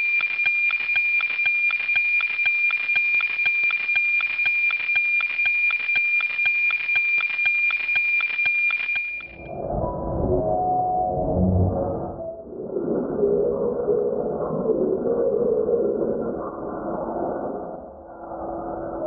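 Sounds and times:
fast clicking pulse: 0.0s - 9.5s
high-pitched electronic tone: 9.2s - 12.5s
low electronic drone: 9.3s - 13.9s.

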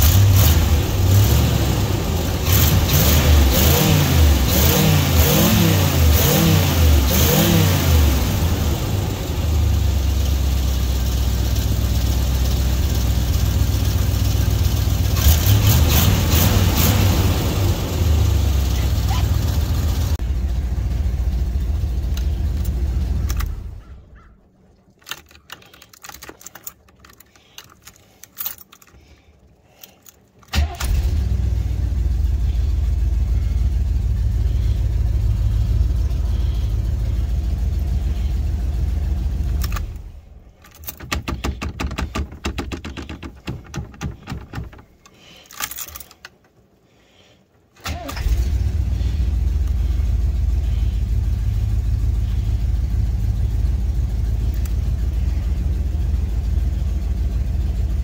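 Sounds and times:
engine running: 0.0s - 24.3s, 25.0s - 46.8s, 47.8s - 58.0s
starter cranking: 24.9s - 31.5s, 34.3s - 46.6s
keys jangling: 25.0s - 30.5s, 40.6s - 46.5s.

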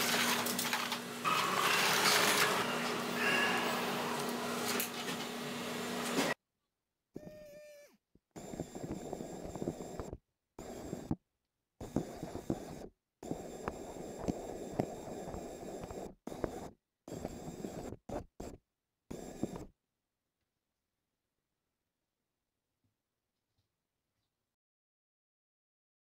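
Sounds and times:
small motor whining: 0.0s - 6.4s
wheels whirring and clicking on floor: 0.0s - 6.4s.

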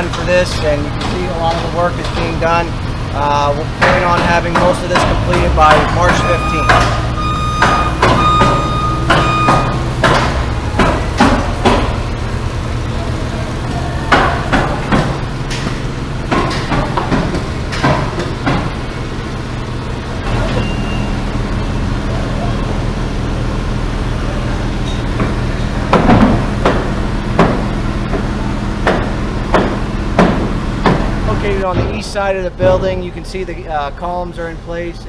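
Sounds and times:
engine droning: 0.0s - 35.0s
hammer blows and bangs: 3.6s - 12.3s, 25.1s - 33.1s.

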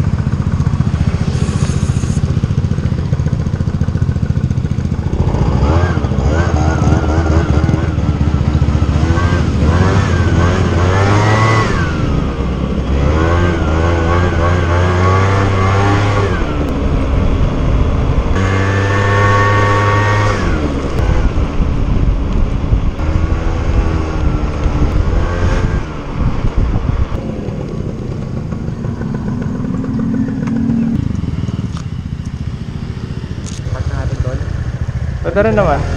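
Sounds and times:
motorcycle engine revving: 0.0s - 35.9s.

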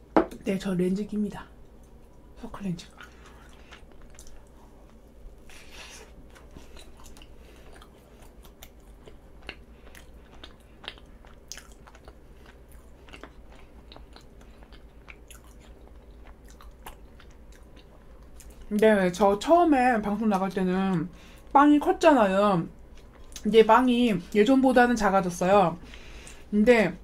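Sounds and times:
close chewing and biting: 2.9s - 18.7s.

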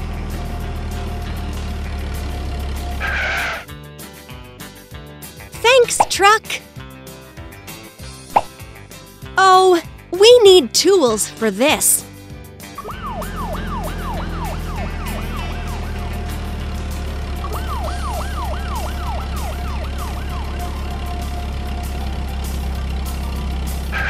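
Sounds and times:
siren wailing: 12.8s - 16.3s, 17.4s - 22.2s
low engine rumble: 12.8s - 24.0s.

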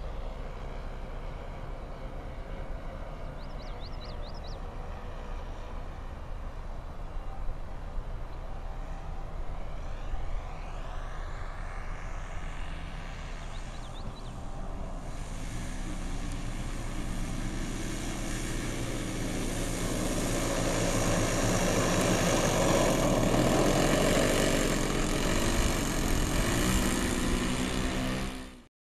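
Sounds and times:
model plane propellers humming: 0.0s - 28.7s.

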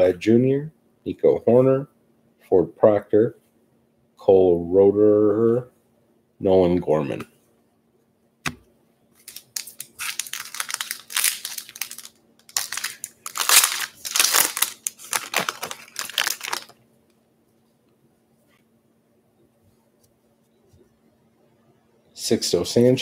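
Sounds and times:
foil wrapper crinkling: 9.2s - 16.8s.

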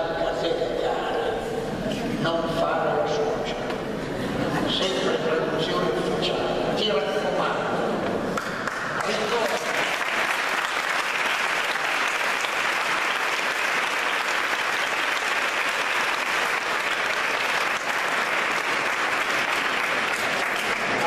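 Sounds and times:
crowd applauding: 8.4s - 21.0s.

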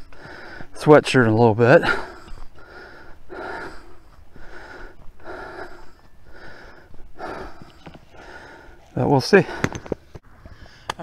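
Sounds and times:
man breathing hard: 0.0s - 0.8s, 1.7s - 11.0s.

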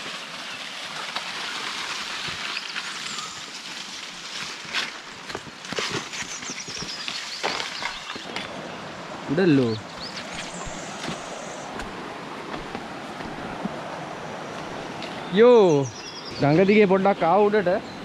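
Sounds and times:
running water rushing: 0.0s - 17.8s
footsteps on stones: 2.1s - 8.6s, 9.9s - 13.9s, 14.5s - 15.2s.

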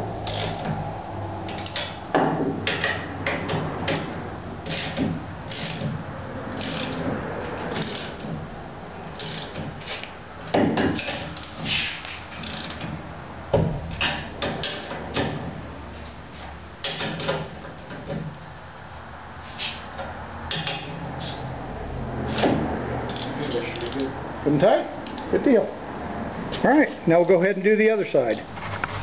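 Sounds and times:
hand ratchet clicking: 0.2s - 0.7s, 1.5s - 2.0s, 2.7s - 7.1s, 7.7s - 8.3s, 9.2s - 13.0s, 23.1s - 24.2s.

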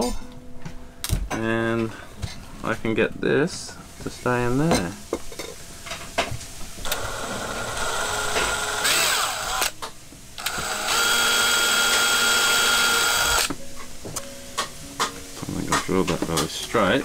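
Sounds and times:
cordless drill whining: 6.8s - 9.8s, 10.4s - 13.5s.

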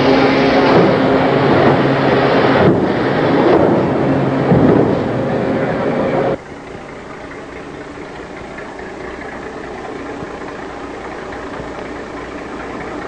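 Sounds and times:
even rushing hiss: 0.0s - 13.0s
low engine drone: 0.0s - 13.0s.

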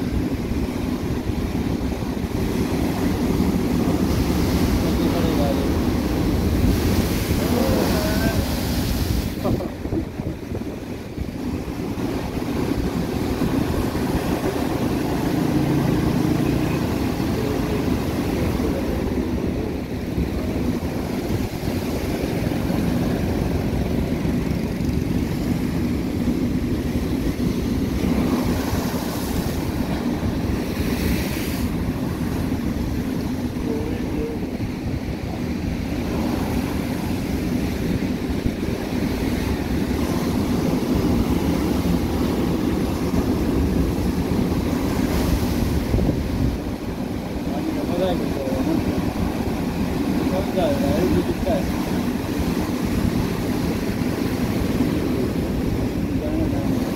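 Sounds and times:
sea surf breaking on shore: 0.0s - 56.9s
strong wind: 0.0s - 56.9s.

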